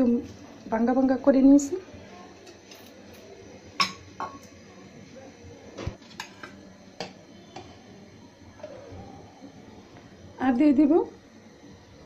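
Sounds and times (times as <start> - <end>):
utensils clinking on pan: 6.0 - 7.2.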